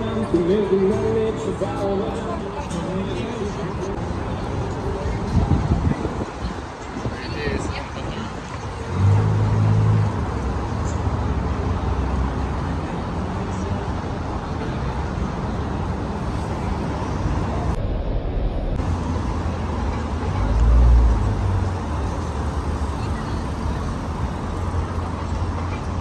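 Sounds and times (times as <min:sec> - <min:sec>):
city street traffic: 0:00.0 - 0:26.0
low rumble: 0:17.7 - 0:19.7.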